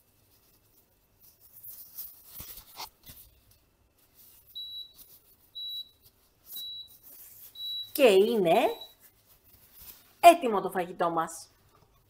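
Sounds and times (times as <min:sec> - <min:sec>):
soft rustles and clicks: 0:00.0 - 0:08.0, 0:08.7 - 0:10.2
short high beeps: 0:08.6 - 0:09.0.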